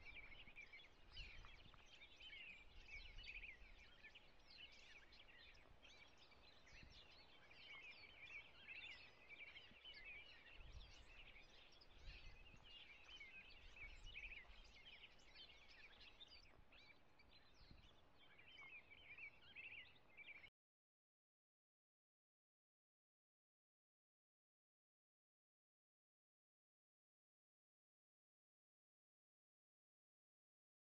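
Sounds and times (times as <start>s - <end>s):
small birds chirping: 0.0s - 20.5s.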